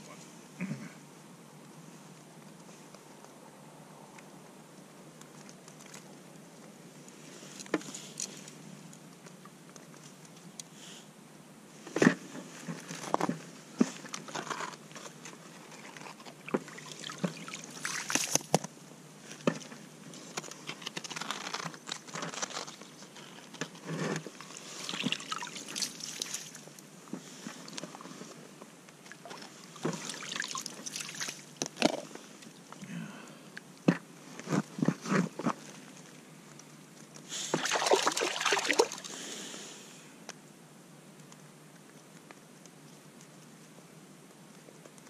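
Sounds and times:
water trickling and splashing: 16.3 - 18.4, 24.6 - 26.7, 29.0 - 31.7, 37.5 - 39.2
slush skimmer scooping water: 24.4 - 26.6, 37.5 - 39.1.

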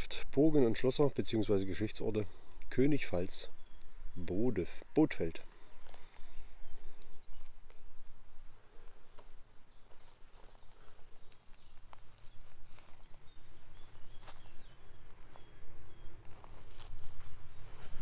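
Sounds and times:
faint bird chirps: 1.0 - 18.0
footsteps on woodland path: 5.4 - 18.0.

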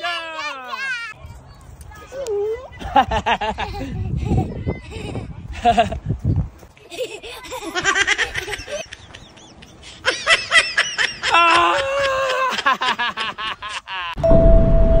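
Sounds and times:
person laughing: 2.8 - 6.0, 6.8 - 14.2.

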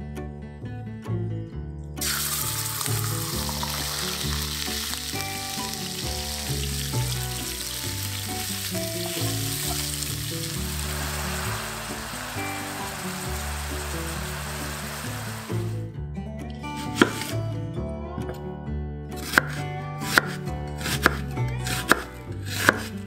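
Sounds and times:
quiet background music: 0.0 - 23.0
meat sizzling in a frying pan: 2.0 - 15.7.

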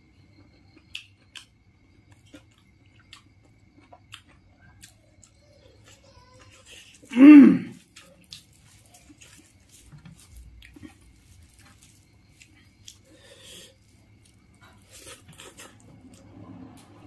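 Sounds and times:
soft chewing: 0.2 - 17.0
person humming: 7.1 - 7.7.

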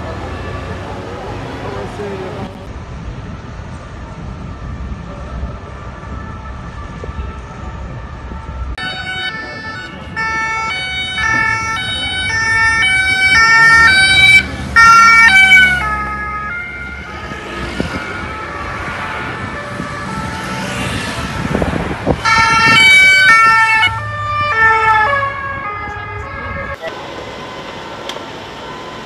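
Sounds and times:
two-tone siren passing: 5.5 - 29.0.

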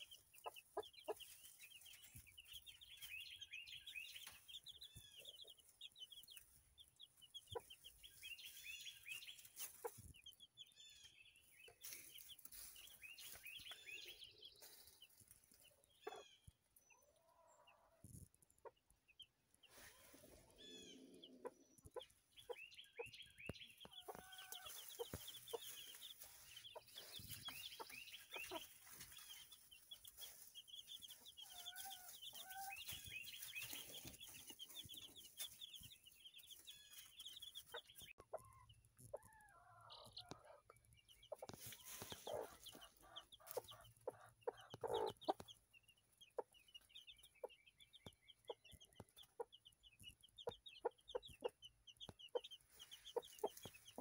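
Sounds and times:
hen clucking: 0.0 - 3.5, 4.1 - 10.4, 16.0 - 18.0, 19.7 - 45.6, 50.3 - 54.0
baby chicks peeping: 0.0 - 54.0.

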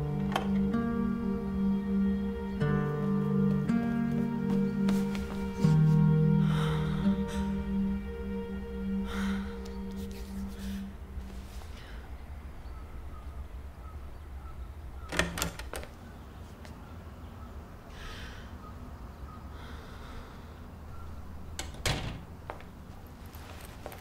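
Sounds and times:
low steady hum: 0.0 - 15.1
door clicks and knocks: 0.2 - 0.6, 15.1 - 16.0, 21.6 - 22.3.

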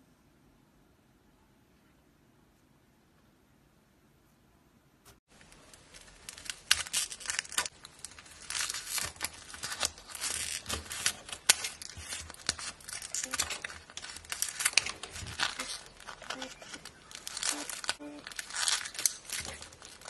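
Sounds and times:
scissors cutting crunchy slime: 8.4 - 20.0.

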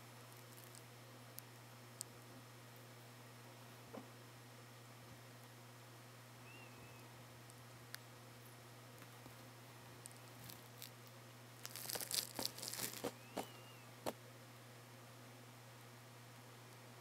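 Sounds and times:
hay crackling and rustling: 11.6 - 13.5.

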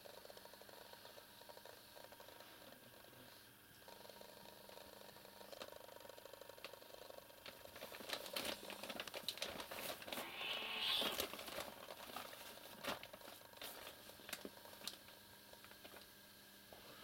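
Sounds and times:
fabric rustling and crumpling: 7.7 - 15.0.

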